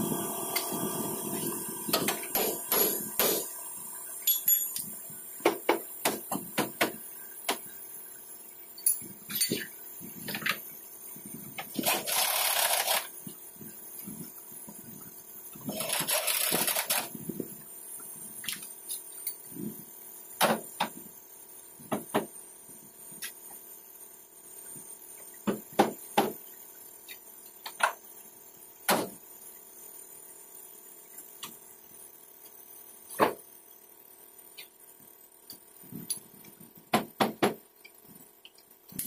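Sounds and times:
hissing bursts: 0.0 - 4.1.

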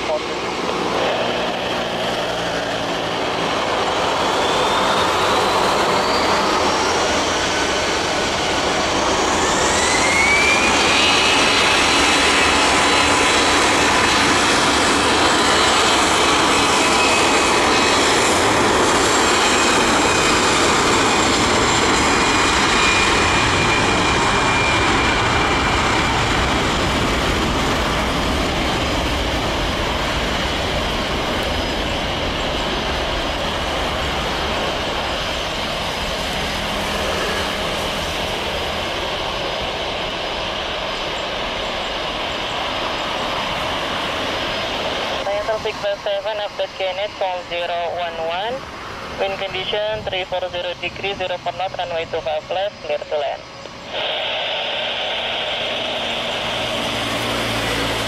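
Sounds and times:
jet engine rumble and whine: 0.0 - 58.0.

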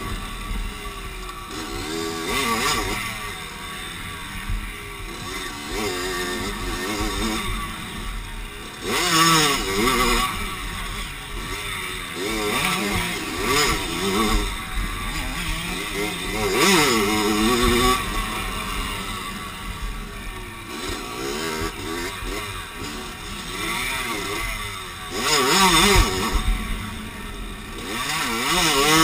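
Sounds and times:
motocross bike engine revving: 0.0 - 29.0.

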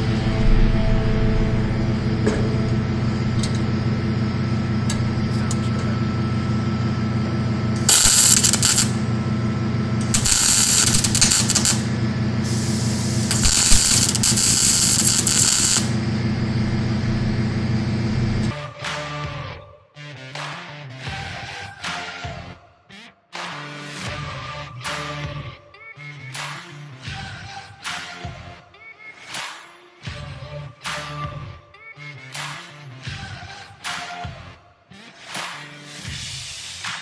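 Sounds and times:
machine hum: 0.0 - 18.5
welding arc crackling: 7.7 - 9.2, 10.0 - 18.5.

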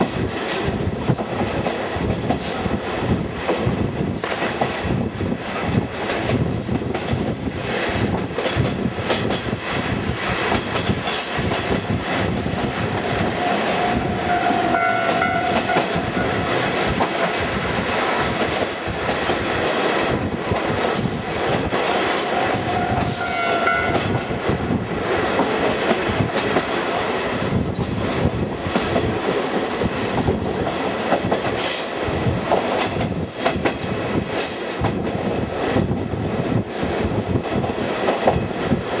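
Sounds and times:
wind rush: 0.0 - 39.0
train horn blast: 13.5 - 16.4, 22.3 - 24.2.

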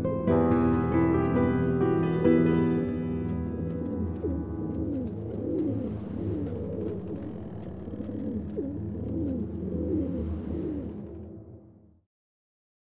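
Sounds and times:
pigeons cooing: 0.9 - 11.4.

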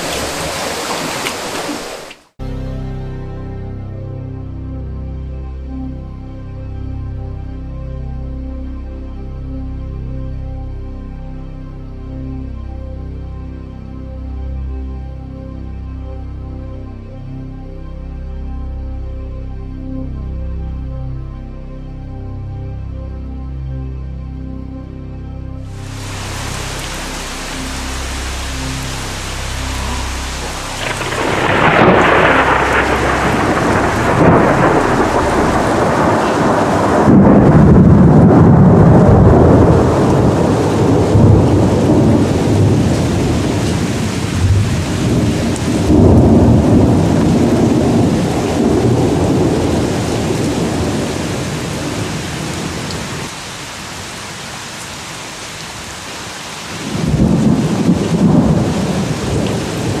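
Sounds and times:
steady rain: 0.0 - 2.4, 25.6 - 60.0
thunder rumbling: 25.8 - 53.4, 56.8 - 60.0.

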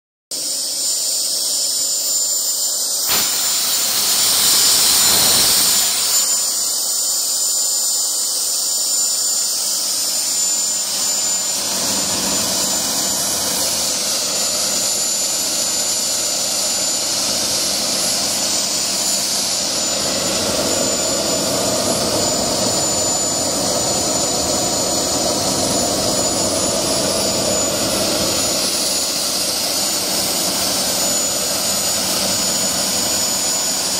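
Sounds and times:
gas turbine whining: 0.3 - 33.9
loud hiss: 0.4 - 22.6.

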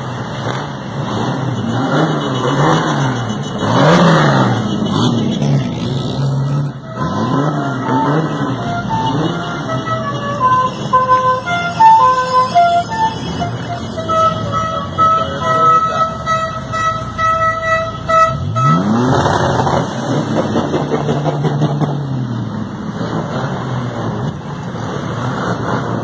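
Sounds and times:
engine revving: 0.0 - 17.1, 17.8 - 26.0
car engines rumbling: 0.0 - 26.0
car horns honking: 0.2 - 20.2.

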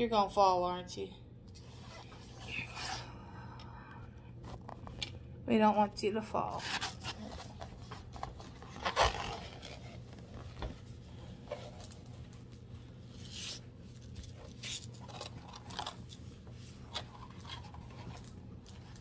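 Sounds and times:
plastic film rustling and crinkling: 6.6 - 19.0.

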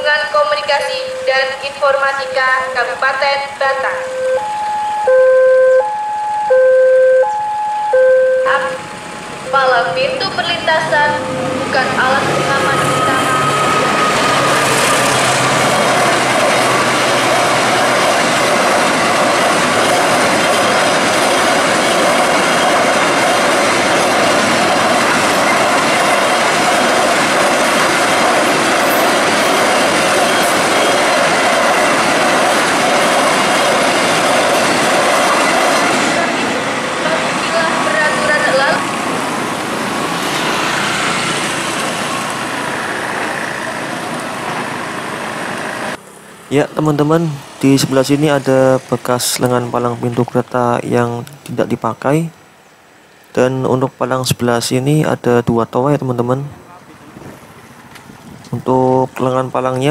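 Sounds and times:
road traffic noise: 0.0 - 59.9
freight train wheels clattering: 11.6 - 46.0
motorcycle engines: 37.0 - 49.0.

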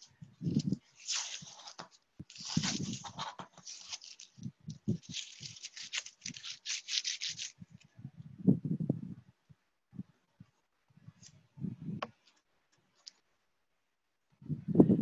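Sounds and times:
tape tearing off: 0.5 - 7.6.

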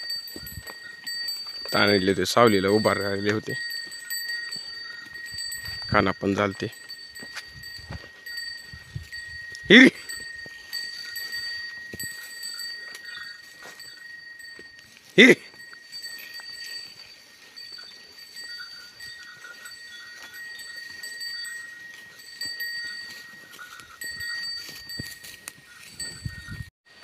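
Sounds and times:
cattle neck bells ringing: 0.0 - 26.7
hooves scuffing on dirt: 0.0 - 27.0
person calling to animals: 9.6 - 10.2, 15.0 - 15.6.

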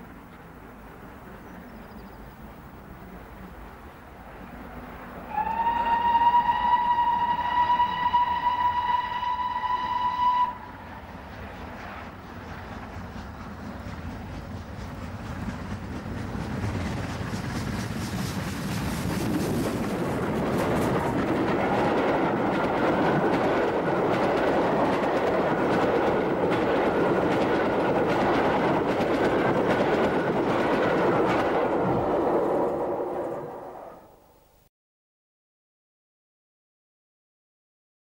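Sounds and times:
train wheels clattering on rails: 11.1 - 33.5.

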